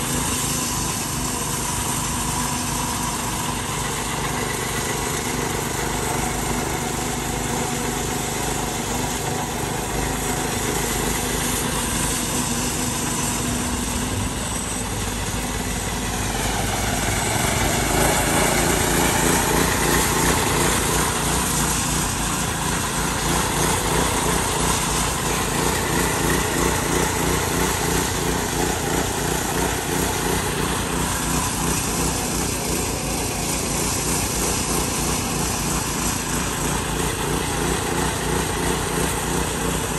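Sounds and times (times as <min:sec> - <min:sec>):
small gasoline engine running: 0:00.0 - 0:39.9.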